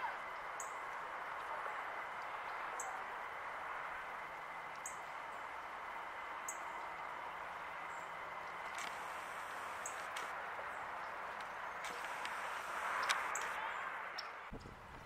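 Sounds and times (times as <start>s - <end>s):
bird chirping: 8.9s - 14.7s.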